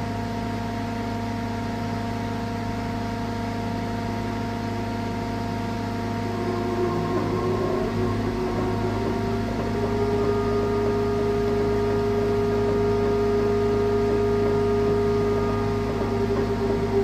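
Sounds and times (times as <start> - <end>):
machine hum and hiss: 0.0 - 17.0
held tone: 5.9 - 17.0.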